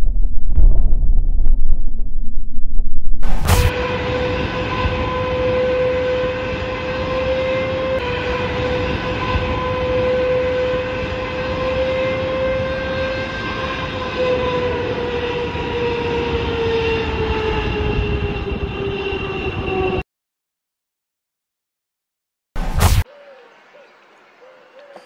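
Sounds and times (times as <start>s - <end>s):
jet engine roar with whine: 3.5s - 20.0s.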